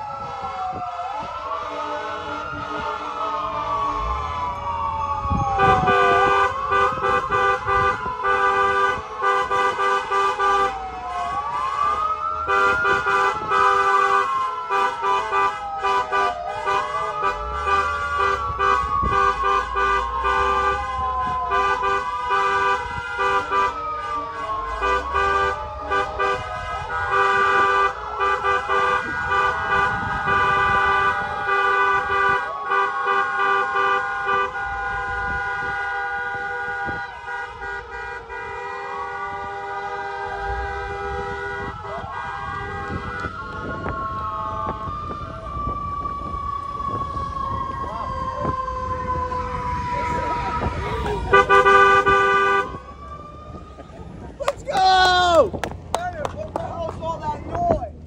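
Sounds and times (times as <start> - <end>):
fire truck siren wailing: 0.0 - 58.0
car horns honking: 5.6 - 43.9, 50.1 - 52.8.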